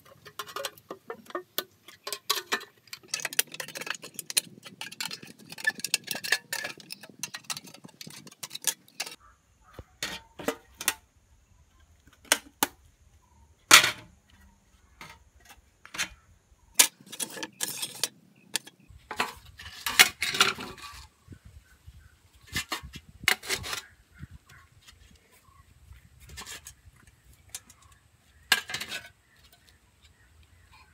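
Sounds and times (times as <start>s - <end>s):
metal tools clicking and scraping: 0.0s - 9.2s, 15.0s - 21.1s, 27.4s - 29.7s.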